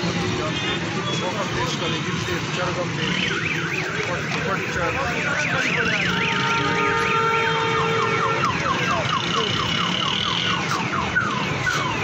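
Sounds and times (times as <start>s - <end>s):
steady background noise: 0.0s - 12.0s
car alarm wailing and chirping: 3.0s - 12.0s.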